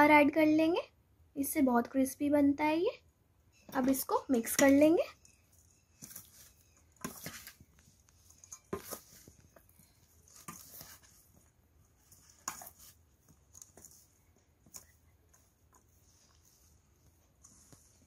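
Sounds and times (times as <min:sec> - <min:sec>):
spoon scraping steel bowl: 0:04.4 - 0:15.5.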